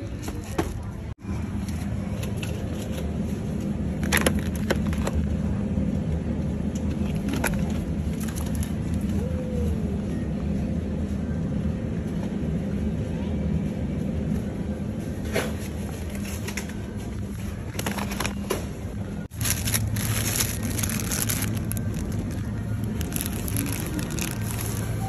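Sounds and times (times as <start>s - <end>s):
refrigerated cabinets humming: 0.0s - 25.0s
plastic tray crackling: 19.3s - 25.0s.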